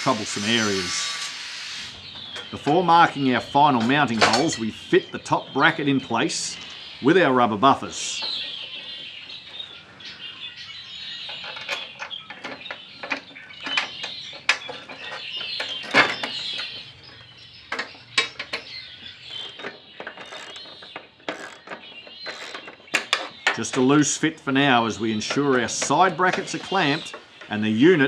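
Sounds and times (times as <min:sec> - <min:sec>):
birds chirping faintly: 0:00.0 - 0:28.0
bolts and bracket clinking: 0:02.2 - 0:06.8, 0:11.2 - 0:28.0.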